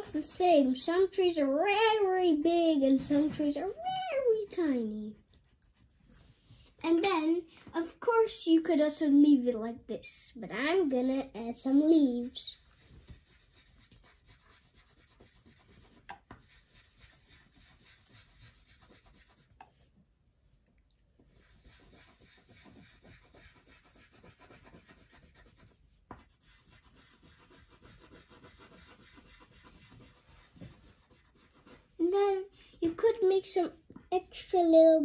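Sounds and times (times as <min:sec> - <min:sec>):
marker scribbling on paper: 0:02.9 - 0:06.0, 0:12.0 - 0:19.8, 0:21.2 - 0:32.1.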